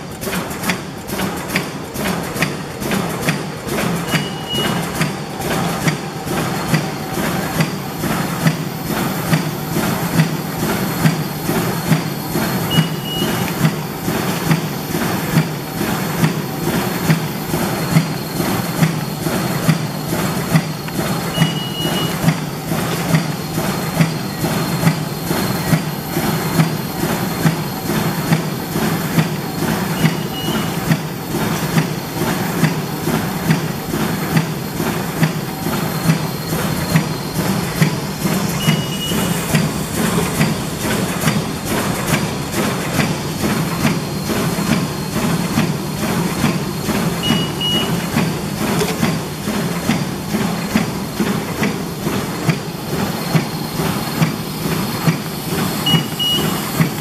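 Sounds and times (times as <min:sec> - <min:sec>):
machine mechanical hum: 0:00.0 - 0:57.0
sharp machine clack: 0:00.0 - 0:57.0
short high beep: 0:04.1 - 0:04.8, 0:12.7 - 0:13.4, 0:21.3 - 0:22.2, 0:30.0 - 0:30.8, 0:38.6 - 0:39.4, 0:47.2 - 0:48.0, 0:55.9 - 0:56.7.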